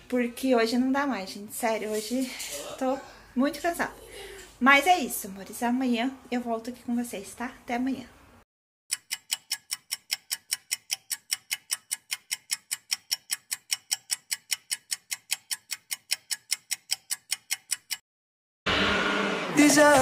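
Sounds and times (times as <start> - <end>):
fast clock-like ticking: 8.9 - 18.0.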